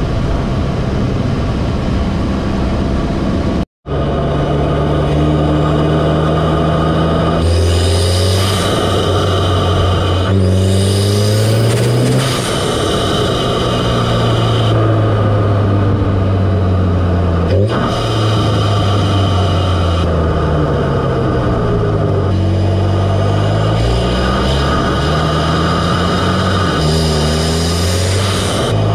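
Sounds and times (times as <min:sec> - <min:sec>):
car engine induction drone: 0:00.0 - 0:28.9.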